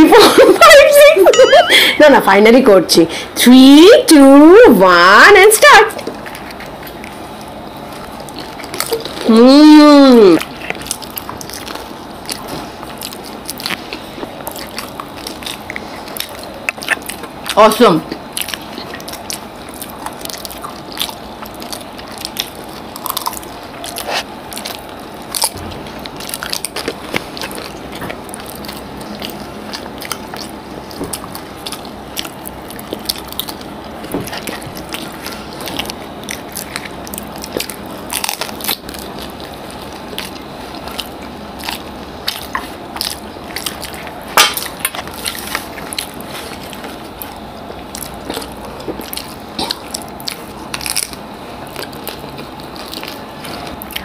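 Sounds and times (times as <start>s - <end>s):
crisp shells crunching: 6.0s - 54.0s.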